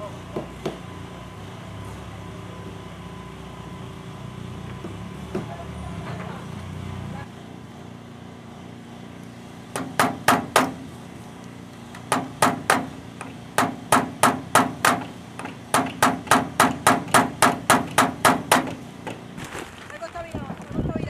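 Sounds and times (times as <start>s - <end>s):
hammer driving nail into wood: 9.7s - 10.8s, 12.0s - 18.8s.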